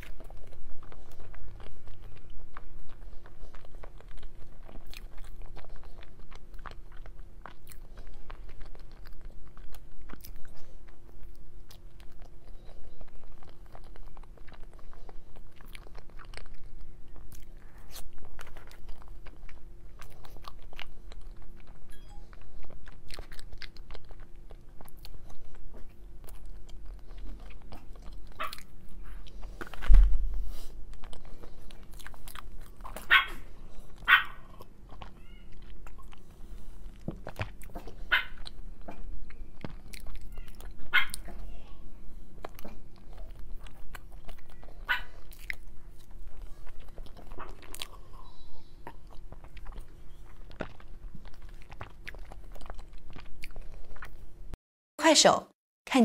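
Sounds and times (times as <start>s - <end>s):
close chewing with mouth clicks: 0.0s - 54.6s
low thump: 29.8s - 30.4s.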